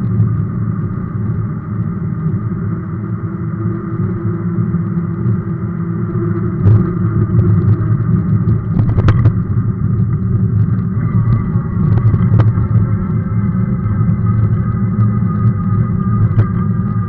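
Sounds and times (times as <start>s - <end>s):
bike rumbling over asphalt: 0.0s - 17.0s.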